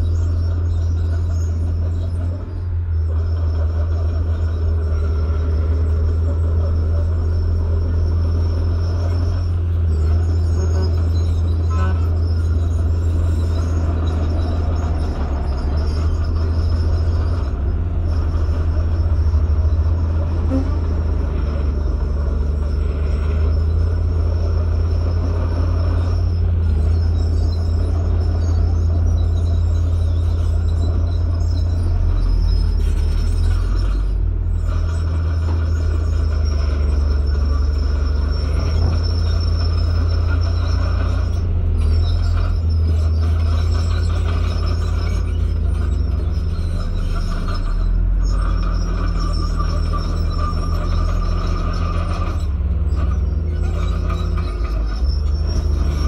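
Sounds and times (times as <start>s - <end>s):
bulldozer diesel engine running: 0.0s - 56.0s.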